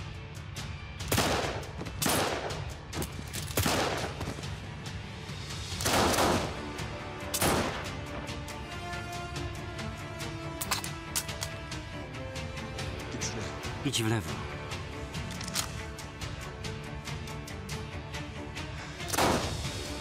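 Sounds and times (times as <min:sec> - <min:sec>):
dramatic background music: 0:00.0 - 0:20.0
echoing handgun shots: 0:01.1 - 0:02.7, 0:03.5 - 0:04.2, 0:05.8 - 0:06.6, 0:07.3 - 0:08.0, 0:19.1 - 0:19.6.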